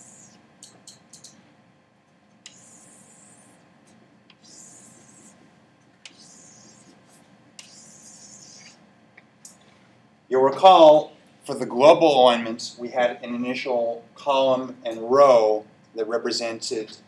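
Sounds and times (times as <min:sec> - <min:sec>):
chalk scratching on blackboard: 0:02.5 - 0:03.6, 0:04.4 - 0:05.4, 0:06.1 - 0:08.8.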